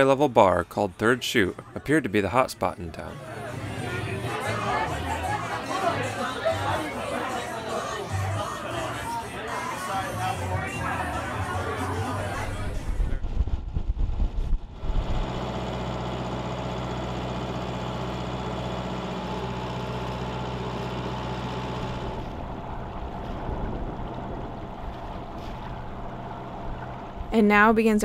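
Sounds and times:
loud irregular buffeting: 12.8s - 27.3s
diesel engine humming: 14.6s - 27.7s.

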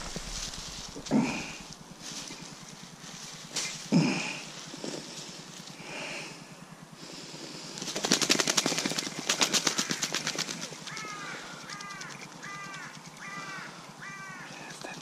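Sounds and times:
wing beating against dry leaves: 0.0s - 6.2s, 7.6s - 15.0s
duck calls: 9.3s - 14.5s.

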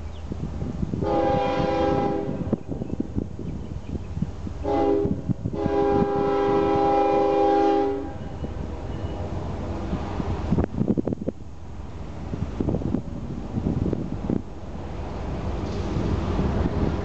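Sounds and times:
low rumble of approaching train: 0.0s - 17.0s
locomotive air horn blasts: 1.0s - 2.6s, 4.6s - 8.6s.

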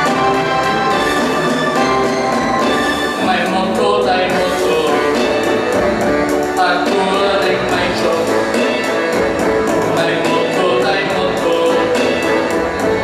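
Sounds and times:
music with steady beat: 0.0s - 13.0s
person singing: 3.2s - 12.6s.

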